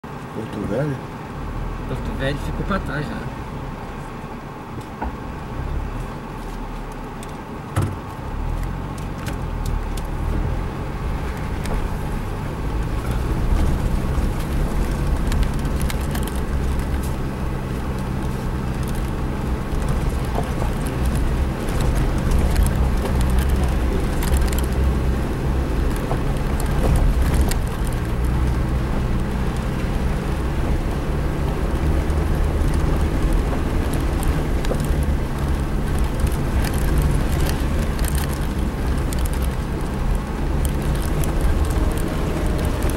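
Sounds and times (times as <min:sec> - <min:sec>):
car engine running: 0:00.2 - 0:42.9
small clicks and knocks: 0:12.8 - 0:17.2, 0:17.9 - 0:25.0, 0:25.8 - 0:30.0, 0:31.7 - 0:42.9.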